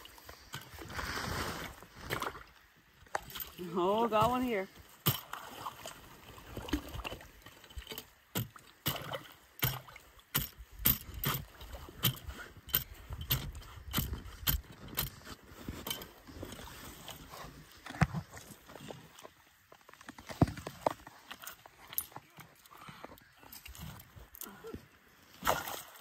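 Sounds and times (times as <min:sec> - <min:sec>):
water sloshing and gurgling: 0:00.0 - 0:26.0.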